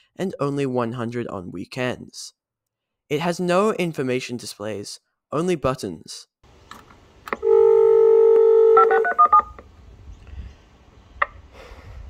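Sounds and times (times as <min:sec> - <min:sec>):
steady telephone tone: 0:07.4 - 0:09.6
dialing beeps: 0:07.5 - 0:09.6.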